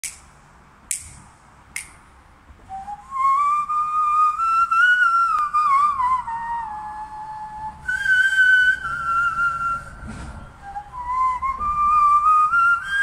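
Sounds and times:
sharp clicks: 0:00.0 - 0:00.3, 0:00.9 - 0:01.2, 0:01.8 - 0:02.0
hand-whistled melody: 0:02.7 - 0:13.0.

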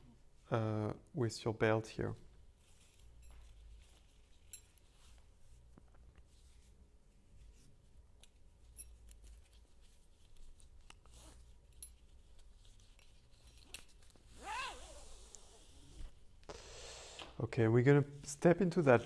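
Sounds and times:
strap handling clicks and rustles: 0:02.6 - 0:06.3, 0:07.5 - 0:15.5.

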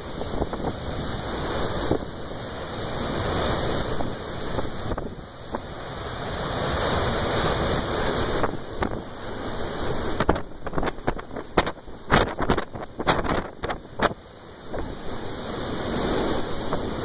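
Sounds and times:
storm surf breaking: 0:00.0 - 0:17.0
wind rushing over microphone: 0:00.0 - 0:17.0
crackles and taps on microphone: 0:10.2 - 0:14.1.

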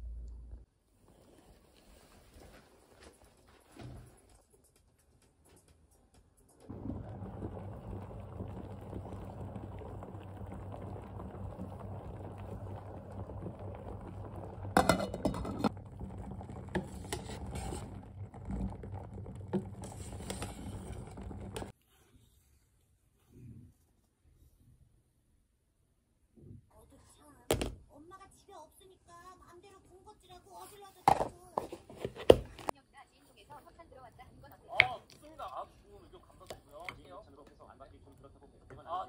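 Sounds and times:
low hum: 0:06.7 - 0:21.7
stew bubbling in a pot: 0:06.7 - 0:21.8, 0:34.1 - 0:39.0.

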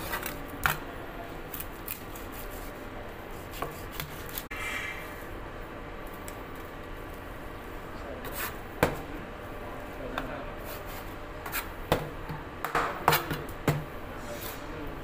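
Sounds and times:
knife scraping through fish: 0:01.6 - 0:04.5.

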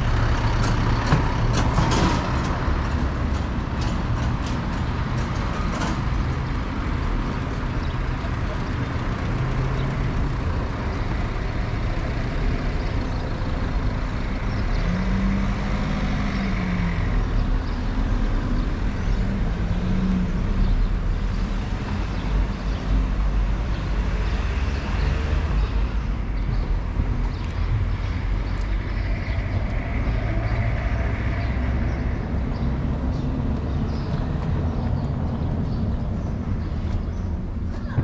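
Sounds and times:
street traffic rumble: 0:00.0 - 0:38.0
vehicle engine revving: 0:14.2 - 0:21.6.

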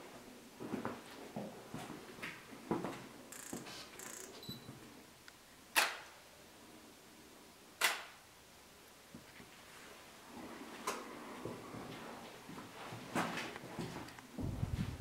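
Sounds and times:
sharp ringing clicks: 0:03.3 - 0:04.6
soft footsteps on hard floor: 0:10.4 - 0:15.0.

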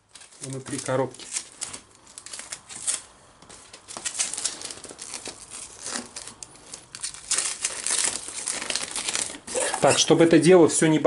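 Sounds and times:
plastic and paper crinkling: 0:00.0 - 0:10.5.

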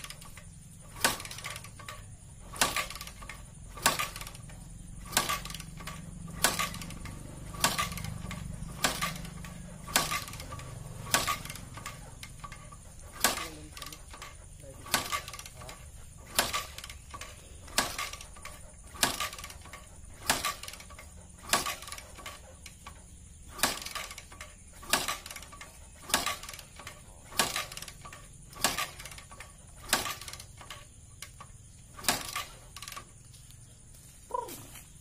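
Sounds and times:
engine turning over: 0:00.0 - 0:33.6
motorcycle kick-starter clacks: 0:00.0 - 0:35.0.

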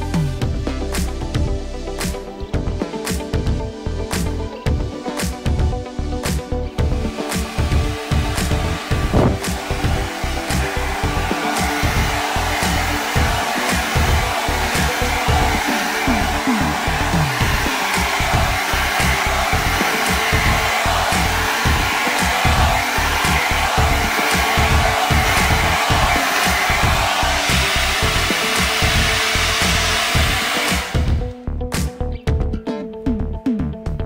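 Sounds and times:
background music with beat: 0:00.0 - 0:34.0
hair dryer blowing: 0:05.2 - 0:31.4.

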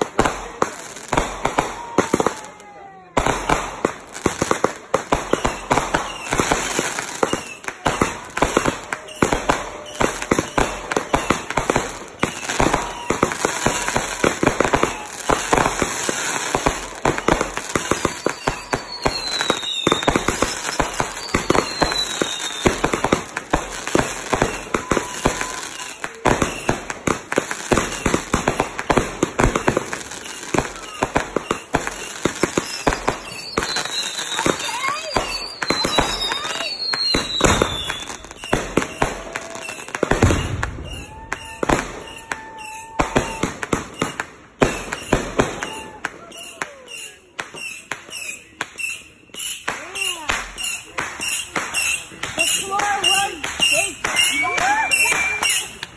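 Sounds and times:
fireworks bangs and crackles: 0:00.0 - 0:55.9
fireworks falling whistles: 0:00.0 - 0:55.9.

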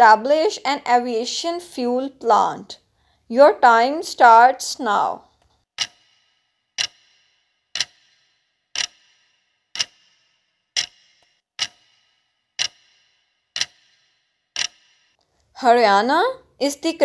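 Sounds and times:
clock ticking: 0:05.3 - 0:15.2.

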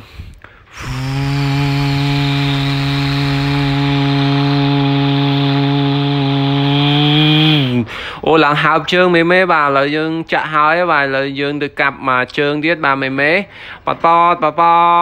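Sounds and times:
man humming a drone: 0:00.7 - 0:07.9.

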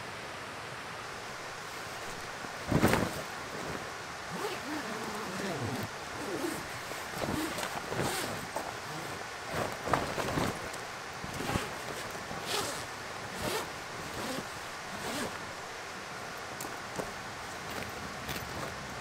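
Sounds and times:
canvas rustling: 0:01.2 - 0:15.9, 0:16.7 - 0:19.0
zipper being pulled: 0:02.7 - 0:10.7, 0:11.3 - 0:15.4.

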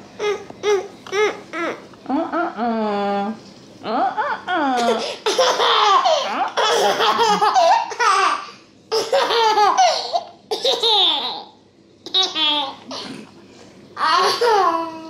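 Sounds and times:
baby laughing: 0:04.8 - 0:13.0, 0:14.0 - 0:15.0.

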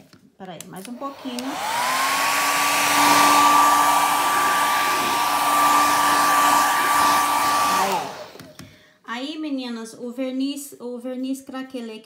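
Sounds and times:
hair dryer running: 0:00.8 - 0:08.7.

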